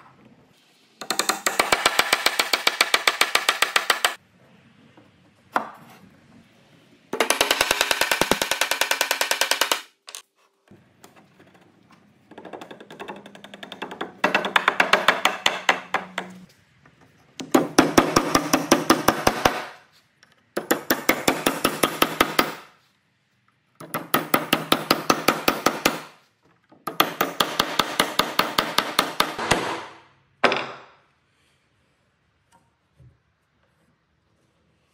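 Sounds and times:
hammer striking wooden pegs: 0:01.0 - 0:04.2, 0:07.2 - 0:10.2, 0:12.3 - 0:16.5, 0:17.4 - 0:19.8, 0:20.6 - 0:22.7, 0:23.8 - 0:26.1, 0:26.8 - 0:31.0.

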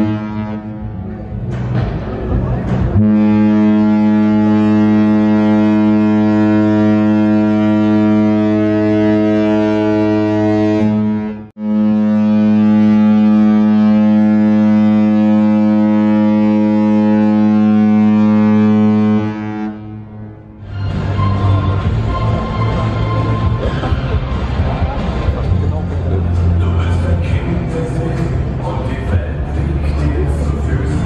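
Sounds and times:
ship's horn deep blasts: 0:00.0 - 0:01.4, 0:02.9 - 0:24.7.

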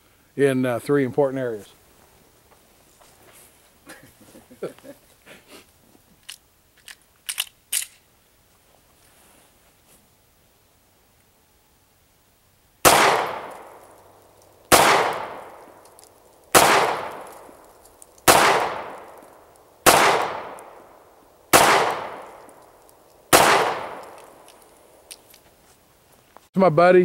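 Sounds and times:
pistol shots with echo: 0:12.8 - 0:14.0, 0:14.7 - 0:15.8, 0:16.5 - 0:24.6.

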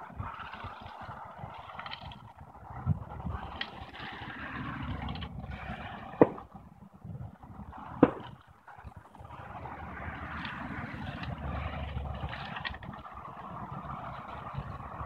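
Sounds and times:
car traffic passing: 0:00.0 - 0:15.0
sharp knocks: 0:08.0 - 0:08.3.

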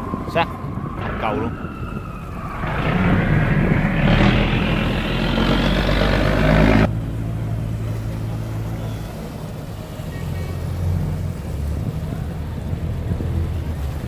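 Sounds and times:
turbulent water rushing: 0:00.0 - 0:14.0
diesel engine running hard: 0:02.6 - 0:07.3.

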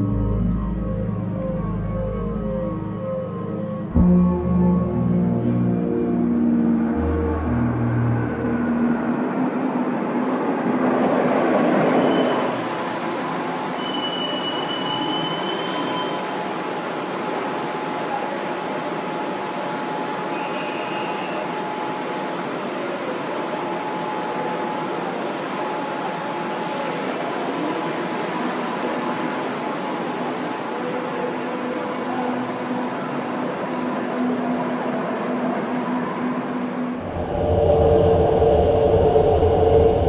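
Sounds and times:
steady rushing hum: 0:00.0 - 0:10.4, 0:36.8 - 0:40.0
train braking to a stop: 0:10.8 - 0:40.0
thin wheel squeal: 0:12.0 - 0:12.6, 0:13.8 - 0:16.3
faint high whine: 0:36.8 - 0:40.0.

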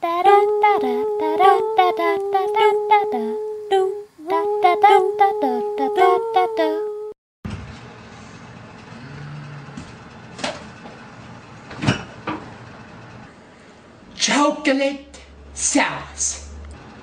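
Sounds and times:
person singing rhythmic tune: 0:00.0 - 0:07.2.

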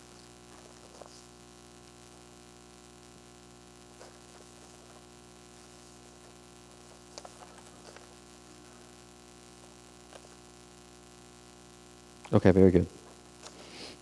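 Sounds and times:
mains hum: 0:00.0 - 0:14.0
paper rustling: 0:00.1 - 0:01.3, 0:03.9 - 0:08.9, 0:10.0 - 0:10.4.

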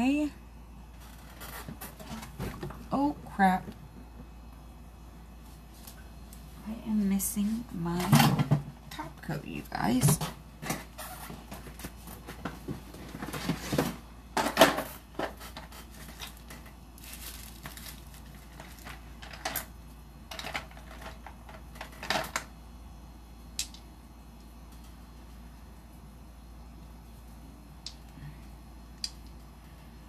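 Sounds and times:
small items clicking and rustling: 0:14.4 - 0:19.7, 0:20.3 - 0:22.5.

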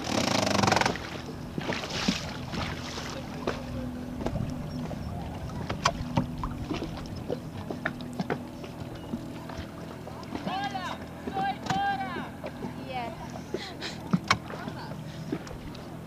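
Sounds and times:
knocks and clicks from boat fittings: 0:00.0 - 0:02.2, 0:04.2 - 0:05.0, 0:05.6 - 0:12.8, 0:13.5 - 0:15.9
steady low hum: 0:00.0 - 0:16.0
water washing against a hull: 0:00.0 - 0:16.0.

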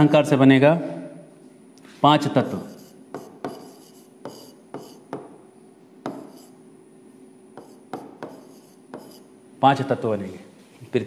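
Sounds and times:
pen scratching on glass: 0:02.5 - 0:05.1, 0:07.6 - 0:09.3
pen tapping on glass screen: 0:07.6 - 0:09.2.

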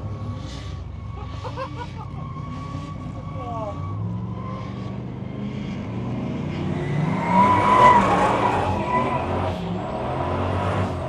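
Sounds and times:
car engine running hard: 0:00.0 - 0:11.0
tyres squealing: 0:06.8 - 0:09.9.

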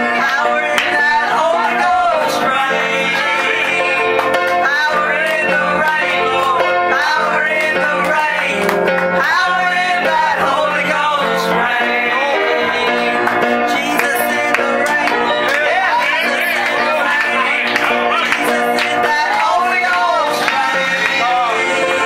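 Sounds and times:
guitar accompaniment: 0:00.0 - 0:22.0
person singing: 0:00.0 - 0:22.0.

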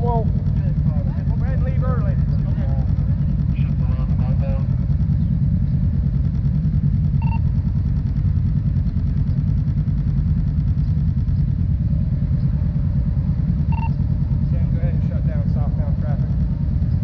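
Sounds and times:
motorcycle engine idling: 0:00.0 - 0:17.0
short electronic beep: 0:07.2 - 0:07.5, 0:13.7 - 0:14.0.

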